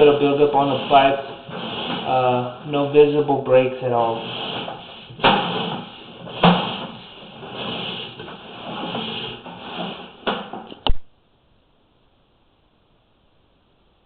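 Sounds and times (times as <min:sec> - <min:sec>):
cable rubbing and scraping in pipe: 0:00.0 - 0:10.7.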